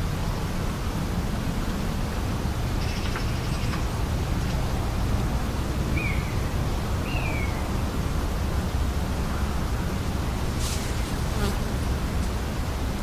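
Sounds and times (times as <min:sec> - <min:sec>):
low rumble and hiss: 0:00.0 - 0:13.0.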